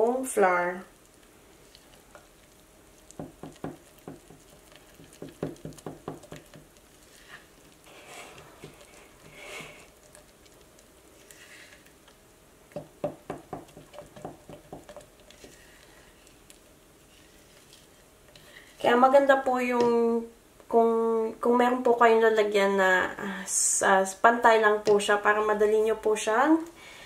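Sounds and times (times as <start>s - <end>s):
spatula stirring in a jar: 1.6s - 19.0s.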